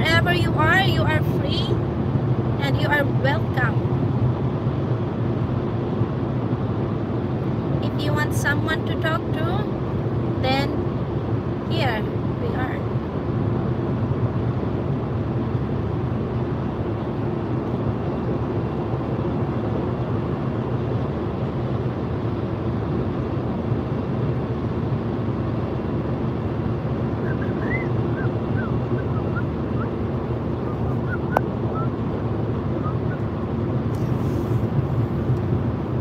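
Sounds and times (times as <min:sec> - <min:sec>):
car road and tyre noise: 0:00.0 - 0:36.0
low steady hum: 0:00.0 - 0:36.0.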